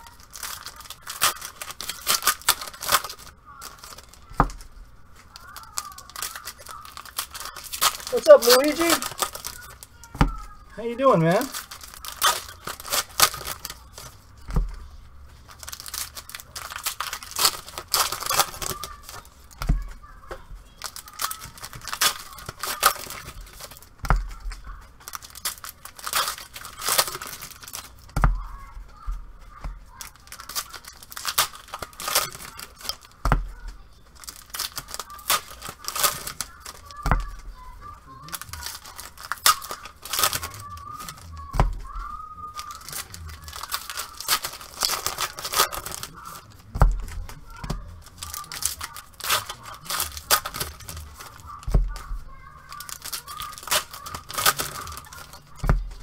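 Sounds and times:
foil wrappers tearing and crinkling: 0.0s - 56.0s
soft low thumps: 46.6s - 48.0s, 55.5s - 56.0s.

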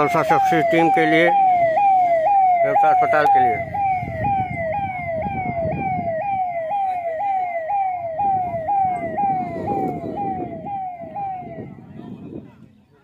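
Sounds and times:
ambulance siren wailing: 0.0s - 12.4s.

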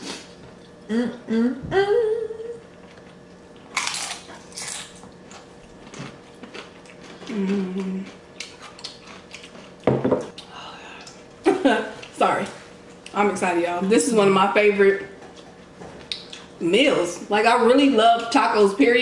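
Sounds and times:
hummed mm sounds: 0.0s - 19.0s
people chewing: 2.7s - 11.3s.

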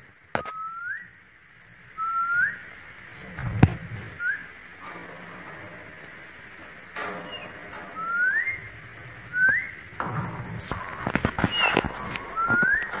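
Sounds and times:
parakeet rising whistle calls: 10.6s - 13.0s.

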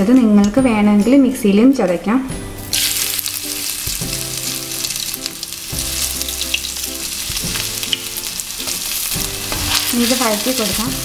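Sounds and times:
garlic sizzling in hot oil: 2.6s - 11.0s.

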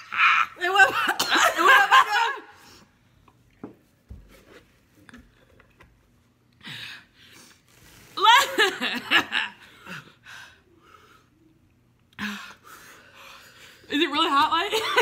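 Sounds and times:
woman laughing: 8.2s - 9.8s, 14.6s - 15.0s.

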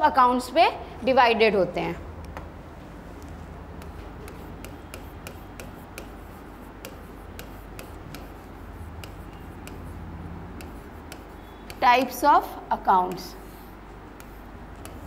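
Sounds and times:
low steady hum: 0.0s - 15.0s
stylus tapping on screen: 3.2s - 12.2s, 13.1s - 13.4s, 14.1s - 15.0s.

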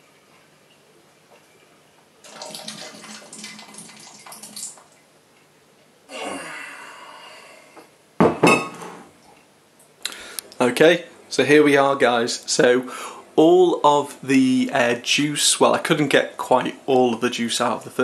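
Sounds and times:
liquid splashing through siphon tube: 2.2s - 5.0s.

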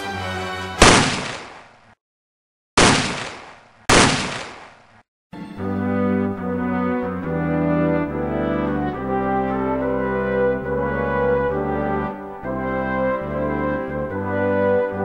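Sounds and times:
brass music: 0.0s - 0.8s, 5.4s - 15.0s.

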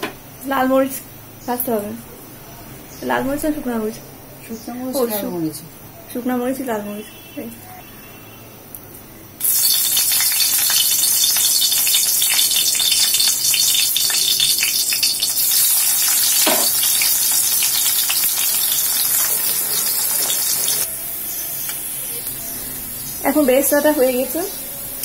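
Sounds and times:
onions sizzling in hot oil: 9.4s - 25.0s.

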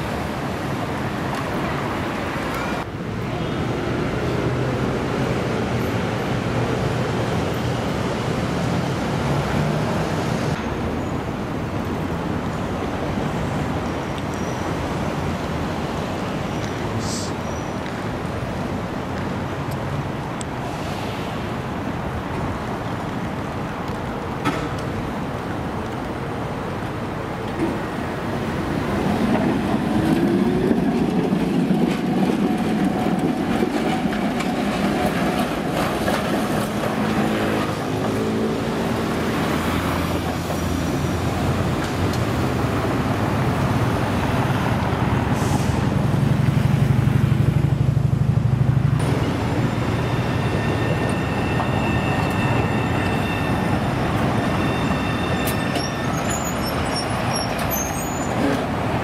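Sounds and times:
tram passing with high whine: 0.0s - 59.0s
tram wheel and rail rumble: 0.0s - 59.0s
tram motor whine rising: 48.7s - 57.8s.

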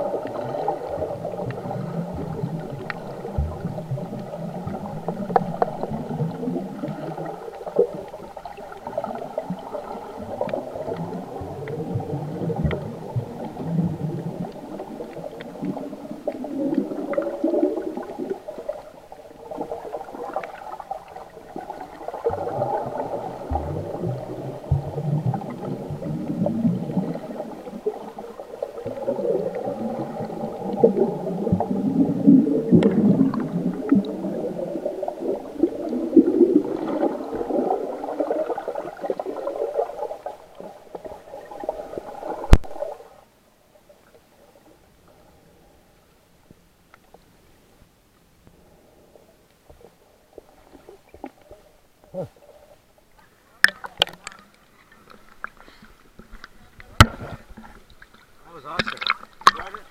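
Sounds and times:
bubbles gurgling: 0.0s - 43.1s, 58.7s - 59.9s
water swirling underwater: 0.0s - 46.0s, 48.5s - 59.9s.

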